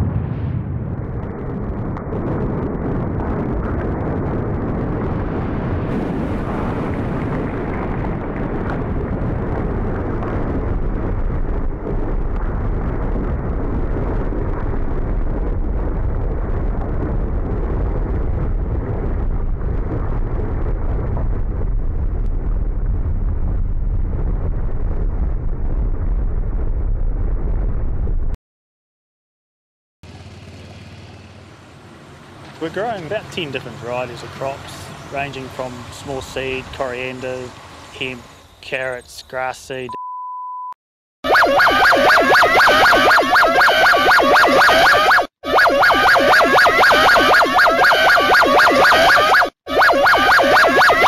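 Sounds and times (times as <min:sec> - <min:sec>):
deep volcanic rumble: 0:00.0 - 0:28.4.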